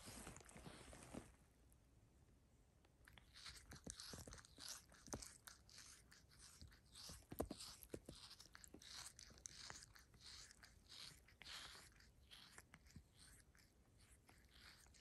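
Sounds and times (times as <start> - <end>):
cat tongue licking skin: 3.0 - 15.0.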